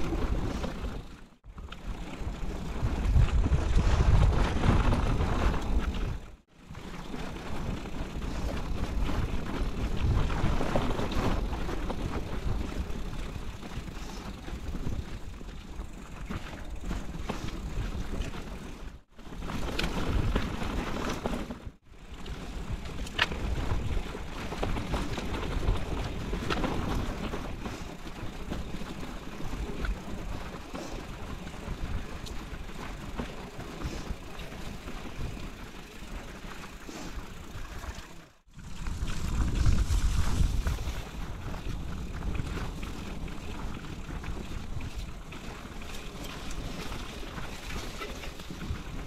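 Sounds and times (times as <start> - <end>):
bike clicks and rattles: 0.0 - 49.0
wind on microphone: 2.7 - 6.3, 37.5 - 45.3.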